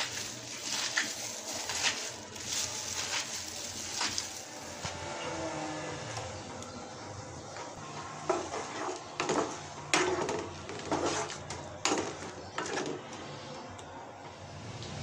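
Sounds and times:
spatula scraping and knocking pan: 0:08.3 - 0:13.0.

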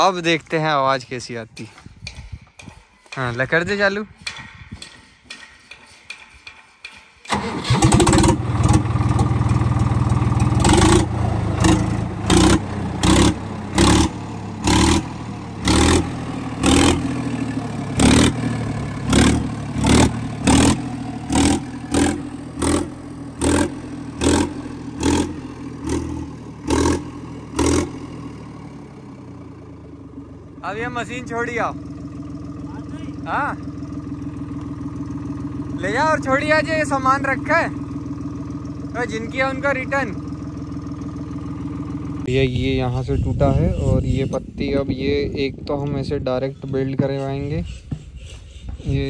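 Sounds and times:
engine starting: 0:07.2 - 0:08.8
tractor diesel engine revving: 0:07.3 - 0:47.6.

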